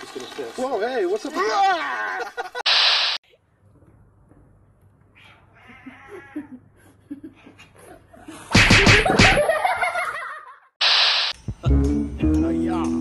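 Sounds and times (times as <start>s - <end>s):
people laughing loudly: 1.9s - 2.6s, 6.4s - 10.7s.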